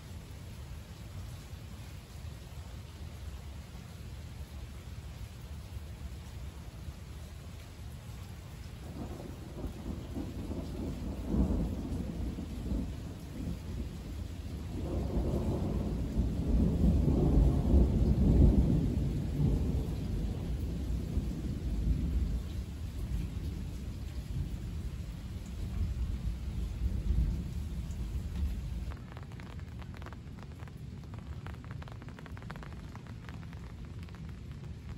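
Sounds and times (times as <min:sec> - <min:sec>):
thunder rumbling: 0:08.8 - 0:34.9.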